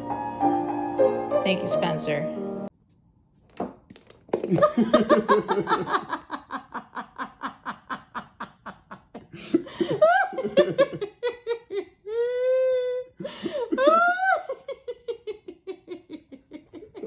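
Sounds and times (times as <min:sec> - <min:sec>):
person laughing hard: 0:04.5 - 0:17.0.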